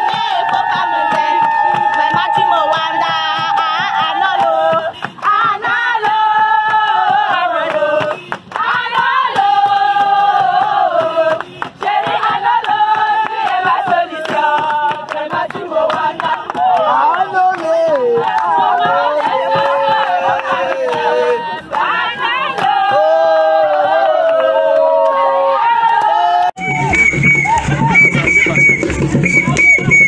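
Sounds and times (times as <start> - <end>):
hand claps: 0.0 - 23.1, 27.0 - 30.0
group singing outdoors: 0.0 - 30.0
woman singing: 0.1 - 16.8.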